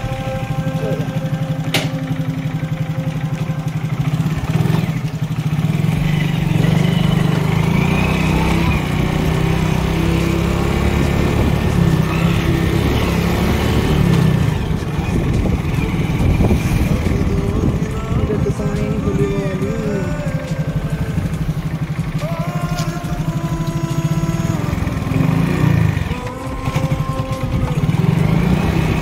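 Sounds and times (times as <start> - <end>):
motorcycle engine running: 0.0 - 29.0.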